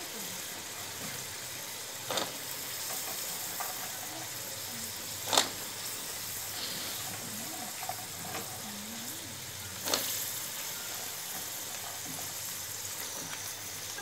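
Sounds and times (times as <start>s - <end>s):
food sizzling in a pan: 0.0s - 14.0s.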